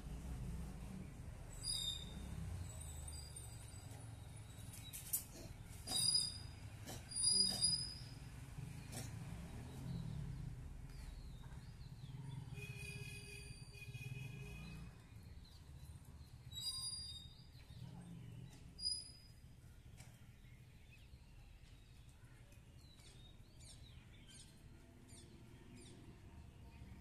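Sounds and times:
animal chirps and calls: 0:05.8 - 0:08.2.

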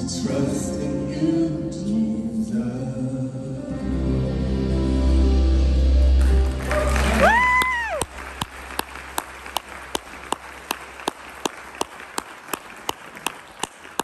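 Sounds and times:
crowd applauding: 0:06.2 - 0:14.0
close hand claps: 0:06.5 - 0:14.0.

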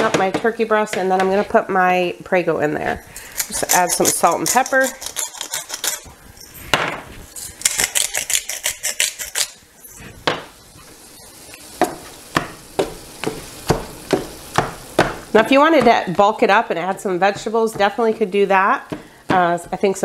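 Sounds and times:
pepper grinder crunching: 0:03.1 - 0:06.7, 0:07.3 - 0:09.6
spatula scraping frying pan: 0:03.2 - 0:06.4, 0:07.3 - 0:10.2
faint sizzle: 0:05.9 - 0:20.0.

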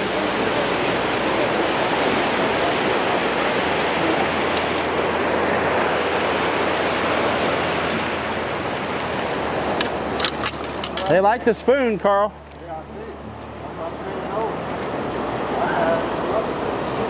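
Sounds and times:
churning whitewater rushing: 0:00.0 - 0:17.0.

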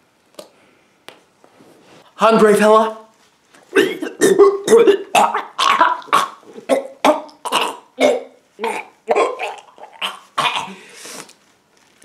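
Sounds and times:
man making retching noises: 0:03.7 - 0:10.8.

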